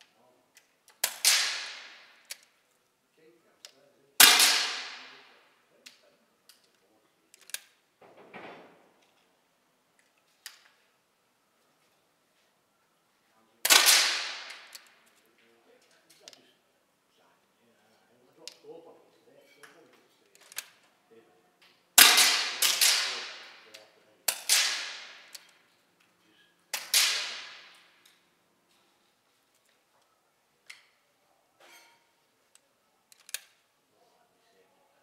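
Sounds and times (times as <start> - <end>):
air rifle shots echoing: 1.0 - 2.2, 4.2 - 5.3, 13.6 - 14.9, 22.0 - 23.7, 24.3 - 25.5, 26.7 - 28.0.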